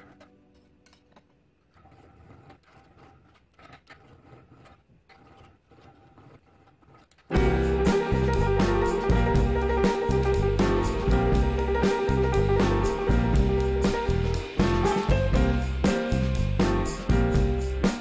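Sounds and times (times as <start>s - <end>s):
file scraping metal: 1.7s - 8.4s
loud guitar music: 7.4s - 18.0s.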